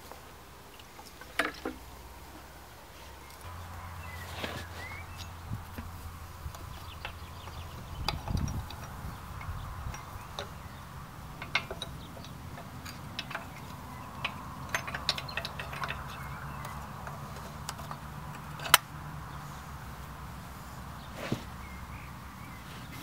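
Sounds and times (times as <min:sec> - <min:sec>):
sharp metallic clicks and clinks: 0:05.1 - 0:18.9.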